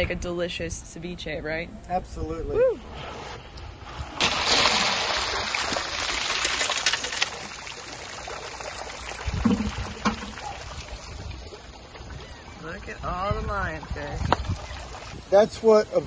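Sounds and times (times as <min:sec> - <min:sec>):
water splashing onto ice: 0:04.2 - 0:11.7.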